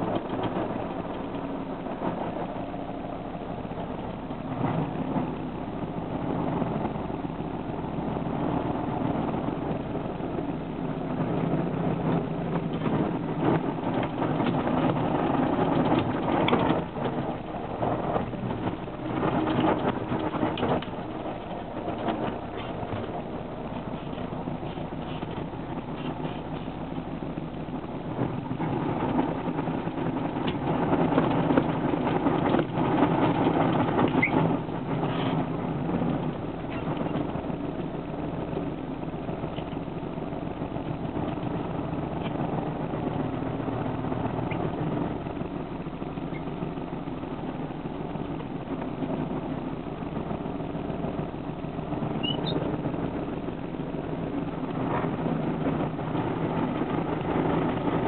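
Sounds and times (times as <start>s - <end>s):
diesel truck engine running: 0.0s - 58.0s.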